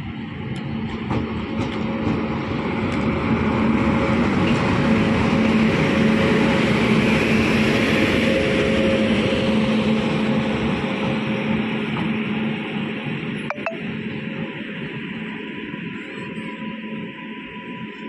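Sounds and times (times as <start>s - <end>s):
train wheels rumbling on rails: 0.0s - 13.3s.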